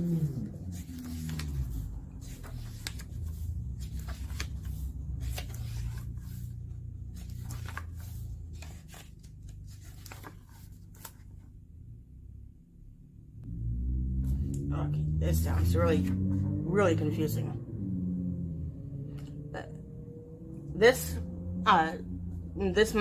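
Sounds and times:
book pages rustling: 0:00.0 - 0:11.6
steady low hum: 0:00.0 - 0:23.0.

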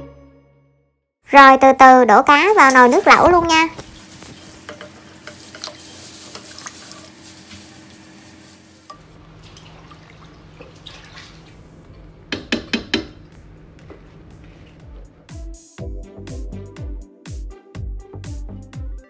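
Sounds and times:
water splashing: 0:09.2 - 0:12.1.

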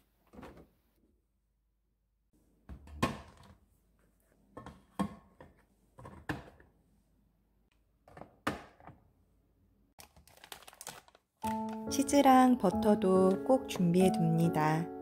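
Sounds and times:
packaging crinkling: 0:10.0 - 0:11.9.

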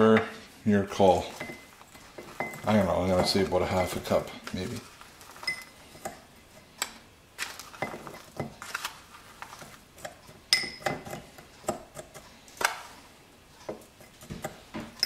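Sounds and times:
spoon scooping sugar: 0:00.9 - 0:13.1
spoon clinking on ceramic bowl: 0:10.5 - 0:11.2.

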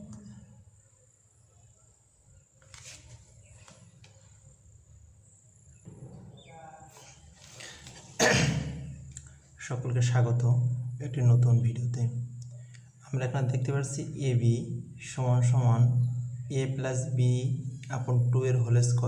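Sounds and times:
crickets chirring: 0:00.2 - 0:09.5.

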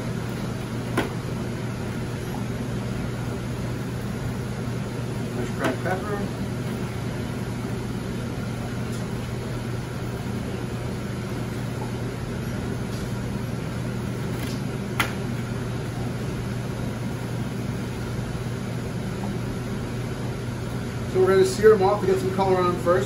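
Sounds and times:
ventilation hum: 0:00.0 - 0:23.0.

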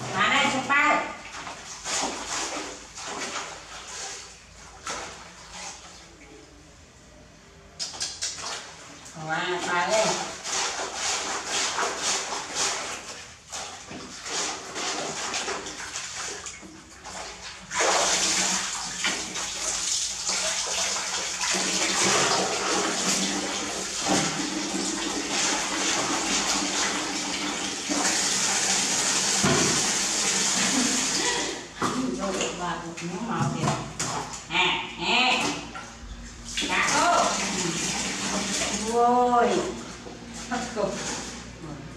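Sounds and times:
water splashing in a basin: 0:00.0 - 0:06.4, 0:07.8 - 0:41.6
tap running into a bucket: 0:13.8 - 0:31.2.

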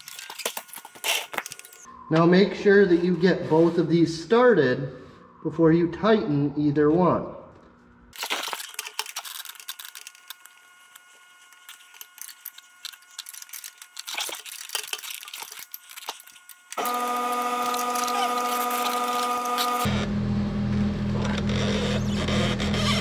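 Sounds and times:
cordless power tool whine: 0:15.2 - 0:23.0.

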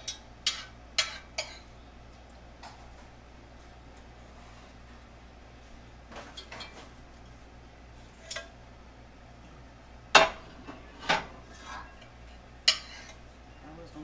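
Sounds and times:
metal spoon scraping a pot: 0:12.7 - 0:13.2.

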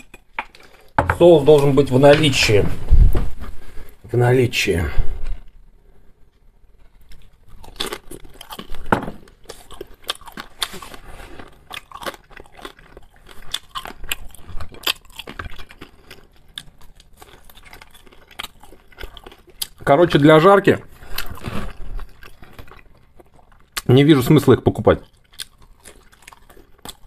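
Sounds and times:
man chewing food: 0:00.0 - 0:01.0, 0:05.2 - 0:19.9, 0:20.8 - 0:23.9, 0:24.9 - 0:27.0.

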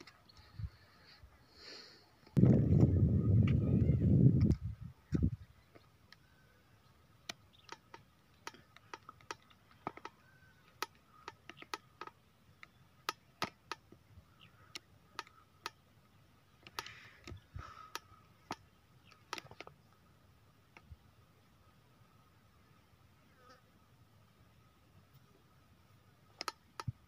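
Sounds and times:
faint high-pitched tone: 0:06.2 - 0:06.7
faint sharp clicks: 0:07.2 - 0:14.0, 0:26.3 - 0:27.0.

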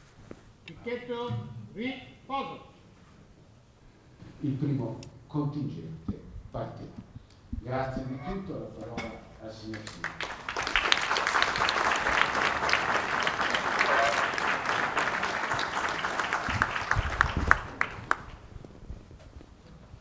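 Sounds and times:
audience applauding: 0:09.6 - 0:18.6.

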